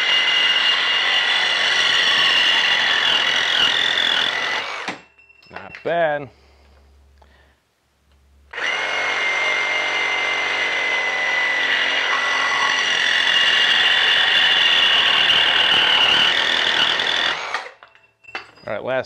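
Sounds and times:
reciprocating saw cutting metal pipe: 0.0 - 5.0, 8.5 - 17.8.

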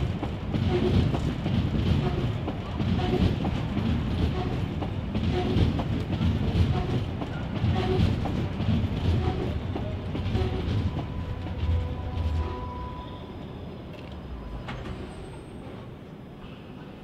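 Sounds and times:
wheels clacking over rail joints: 0.0 - 12.6
train rumbling: 0.0 - 17.0
wheel squeals on rail: 4.1 - 5.8, 9.0 - 16.0.

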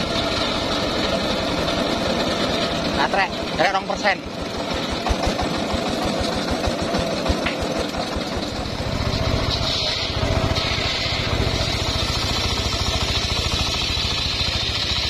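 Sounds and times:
engine-driven circular saw running: 0.0 - 15.0
saw blade cutting wood: 4.6 - 15.0.

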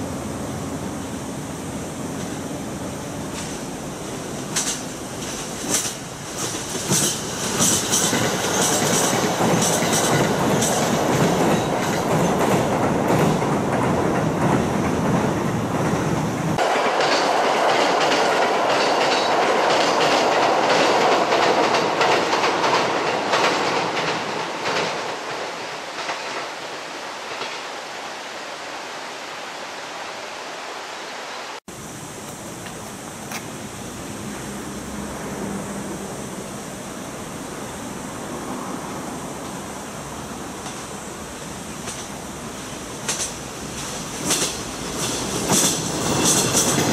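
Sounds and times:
train rumbling across steel bridge: 0.0 - 28.2, 31.7 - 46.9
train wheels clattering over rail joints: 4.4 - 26.6, 41.8 - 42.2, 43.0 - 46.9.

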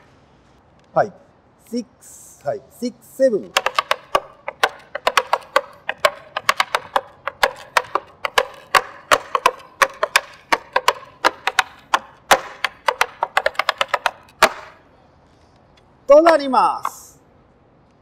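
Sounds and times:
tap shoes on wooden board: 3.4 - 14.8, 16.1 - 17.0.

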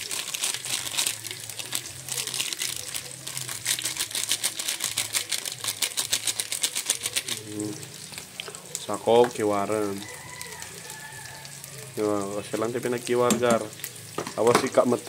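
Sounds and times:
foil packet crinkling: 0.0 - 8.6
powder pouring: 0.0 - 15.0.

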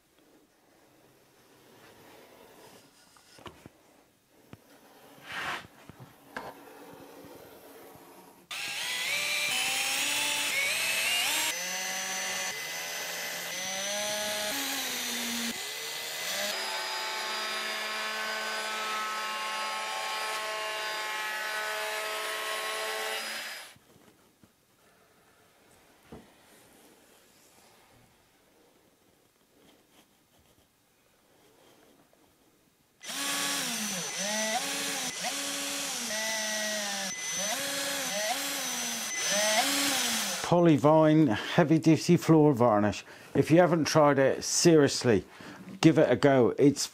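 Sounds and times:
cordless drill motor whining: 8.5 - 19.0, 21.8 - 23.8, 33.0 - 40.5.

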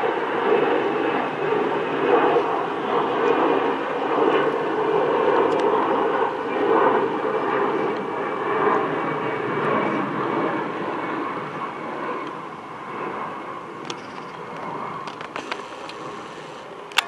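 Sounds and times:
jet engines rushing hum: 0.0 - 17.0.

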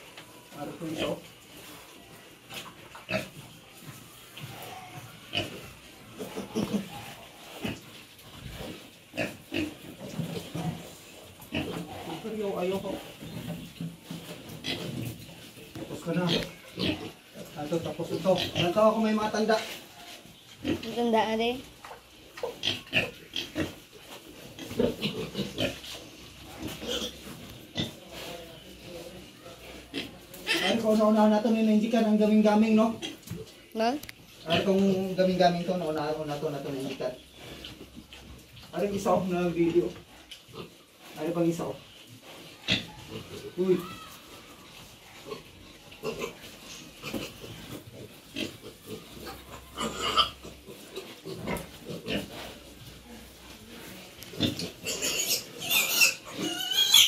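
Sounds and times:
pigs grunting: 4.4 - 13.5, 15.9 - 19.2, 22.4 - 23.8, 24.4 - 28.4, 42.3 - 43.8, 45.2 - 53.3, 54.3 - 57.0
pig high-pitched cry: 30.4 - 30.9, 42.6 - 44.6, 48.8 - 50.5, 54.8 - 57.0.

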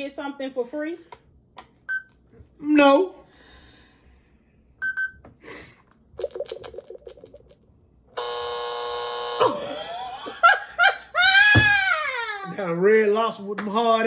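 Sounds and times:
electronic beeps: 4.8 - 5.2
long flat buzzer tone: 8.1 - 9.8.

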